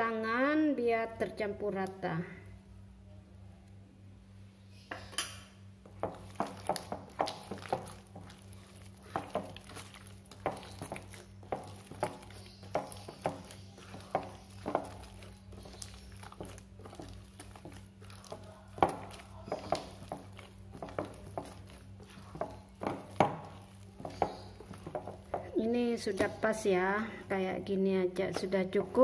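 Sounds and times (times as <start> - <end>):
hand squeezing wet dough: 5.8 - 29.0.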